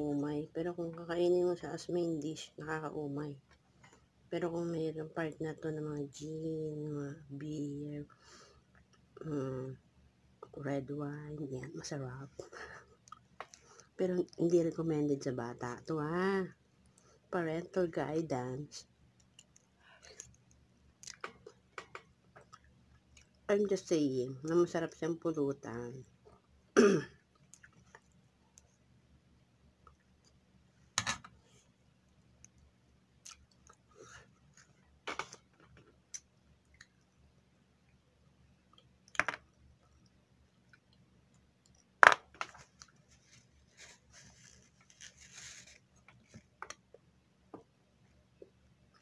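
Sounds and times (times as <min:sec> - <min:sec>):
person chewing quietly: 0:12.4 - 0:14.0, 0:19.1 - 0:21.7, 0:22.3 - 0:23.5, 0:27.2 - 0:28.8, 0:29.8 - 0:30.4, 0:31.6 - 0:34.9, 0:35.9 - 0:38.0, 0:39.8 - 0:42.0, 0:42.6 - 0:46.3.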